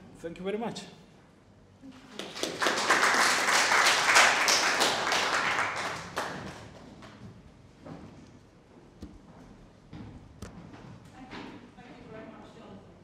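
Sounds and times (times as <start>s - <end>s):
audience applauding: 2.1s - 6.9s.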